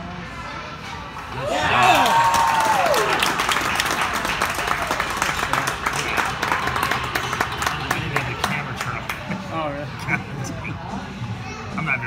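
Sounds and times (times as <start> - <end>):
spectators clapping: 1.5 - 9.3.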